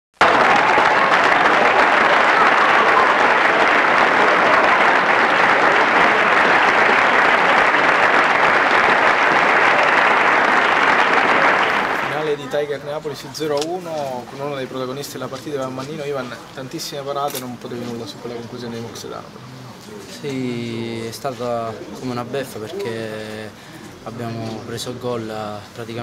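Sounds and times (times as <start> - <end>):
crowd applause: 0.2 - 12.8.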